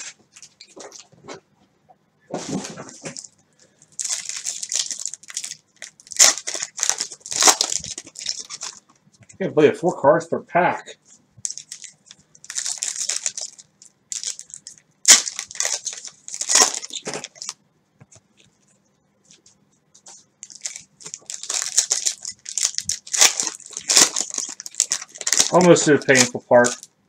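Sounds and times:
cellophane wrappers crinkling and tearing: 0:02.4 - 0:08.8, 0:11.4 - 0:17.6, 0:19.3 - 0:26.9.

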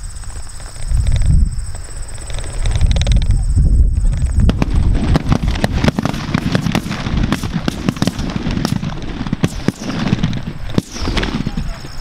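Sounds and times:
shotgun cracks: 0:05.8 - 0:11.7.

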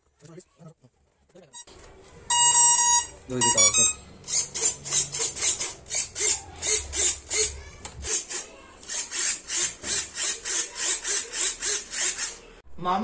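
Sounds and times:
rhythmic scraping strokes: 0:02.3 - 0:12.6.

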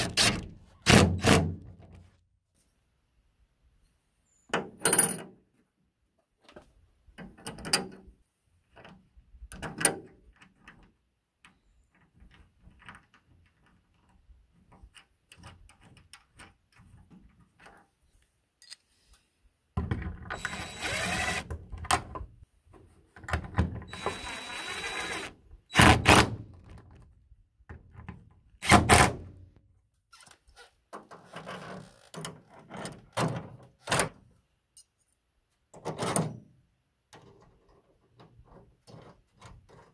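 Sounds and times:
cordless drill running: 0:20.4 - 0:21.5, 0:23.9 - 0:25.3.

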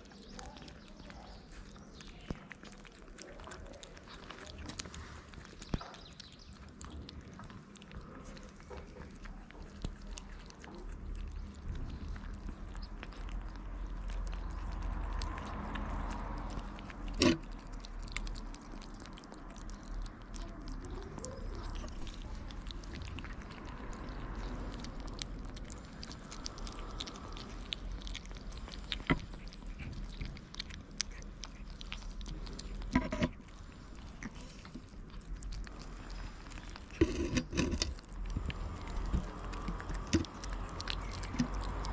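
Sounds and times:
kittens chewing wet food: 0:00.0 - 0:41.9.

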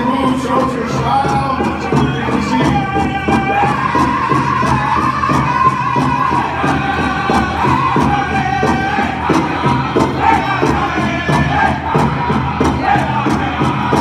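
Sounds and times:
big drum beating steadily: 0:00.0 - 0:14.0
group singing high-pitched vocals: 0:00.0 - 0:14.0.

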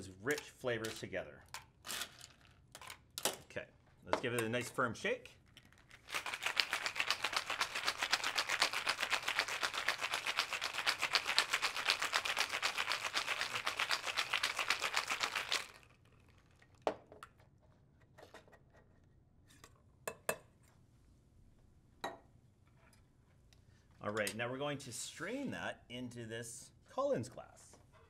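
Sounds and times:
ice rattling in cocktail shaker: 0:05.4 - 0:16.8
metal shaker tins clinking: 0:05.6 - 0:16.0.

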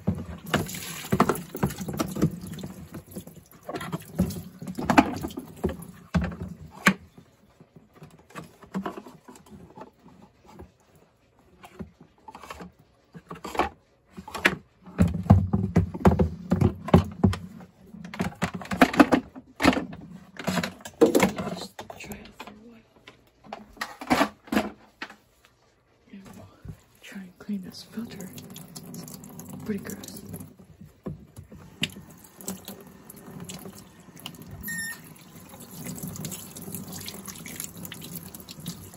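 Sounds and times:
plastic clattering against sink: 0:00.0 - 0:10.7, 0:11.6 - 0:22.6, 0:23.4 - 0:25.2
water splashing: 0:35.1 - 0:38.9.

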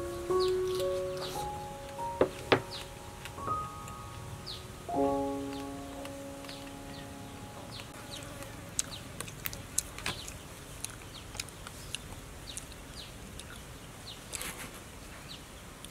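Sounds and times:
small bird chirping: 0:00.0 - 0:14.6
quiet outdoor ambience: 0:00.0 - 0:15.9.

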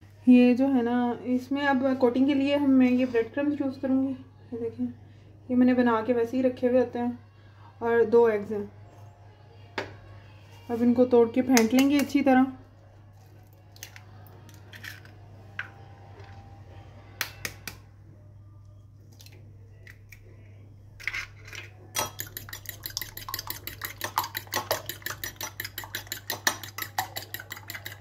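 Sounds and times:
fork beating eggs in bowl: 0:21.0 - 0:28.0.

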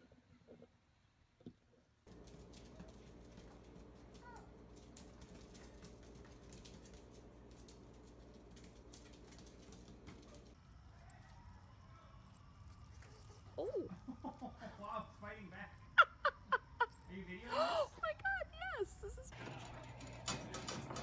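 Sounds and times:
dog claws clicking on floor: 0:02.1 - 0:10.5.

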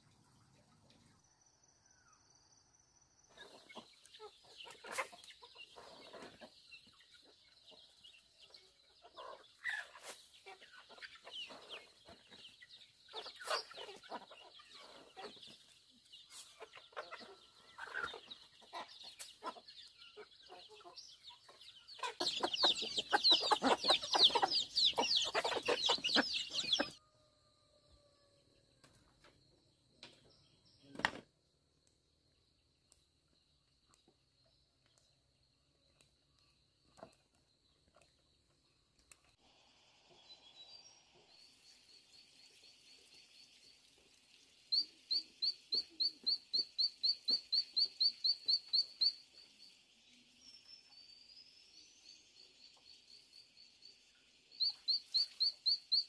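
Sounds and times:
chickens clucking and calling: 0:03.2 - 0:29.0, 0:44.7 - 0:49.4, 0:54.6 - 0:56.0.

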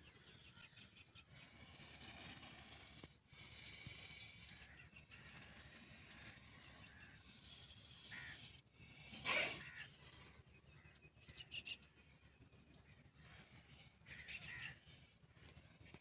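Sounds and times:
faint outdoor background: 0:00.0 - 0:16.0
crows cawing: 0:04.5 - 0:11.8, 0:13.2 - 0:15.1.

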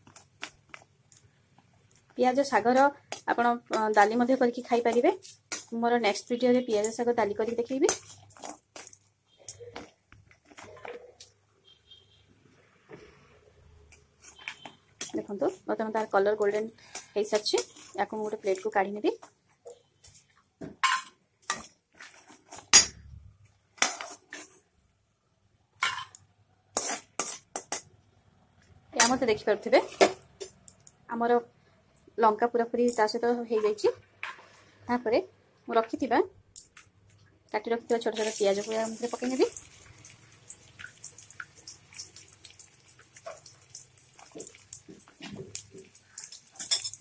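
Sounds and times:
small crackles of frying: 0:00.0 - 0:11.5, 0:13.1 - 0:22.8, 0:36.6 - 0:47.0
metal spoon scraping and clinking: 0:06.8 - 0:09.8, 0:26.8 - 0:27.9, 0:41.6 - 0:47.0
onions sizzling in oil: 0:38.0 - 0:47.0.

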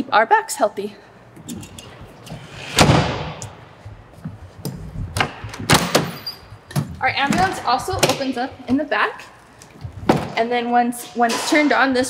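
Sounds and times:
metal door slamming shut: 0:05.6 - 0:06.3.

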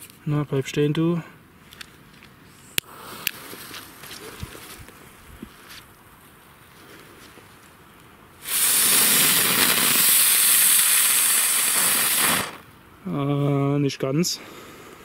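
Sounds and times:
firework hiss of spraying sparks: 0:02.5 - 0:04.4, 0:08.4 - 0:12.7
fuse burning: 0:08.0 - 0:12.8.

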